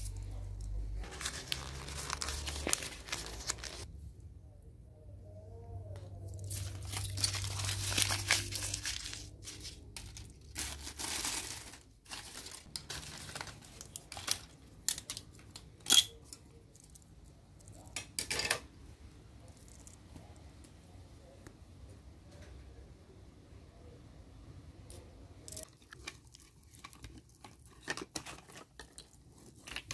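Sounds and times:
wrappers crumpling and rustling: 0:00.0 - 0:03.9, 0:06.3 - 0:15.6, 0:25.6 - 0:29.9.

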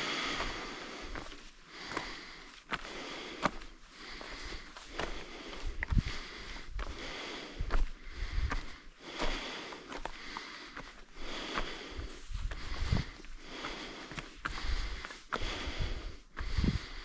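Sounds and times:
person breathing hard: 0:00.0 - 0:17.0.

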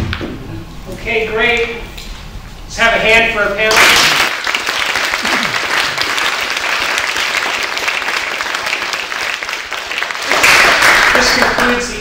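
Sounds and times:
audience applause: 0:03.7 - 0:11.9.

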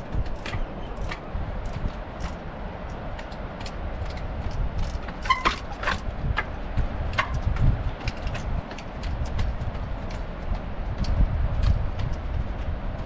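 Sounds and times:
wind rumbling on microphone: 0:00.0 - 0:13.0
trials bike knocking on rocks: 0:03.1 - 0:10.3.

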